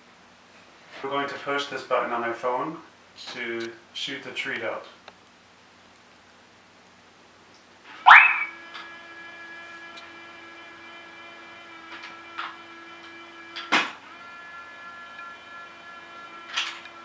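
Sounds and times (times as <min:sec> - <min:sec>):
whirring hum: 0:01.0 - 0:17.0
springy twang rising in pitch: 0:08.1 - 0:08.5.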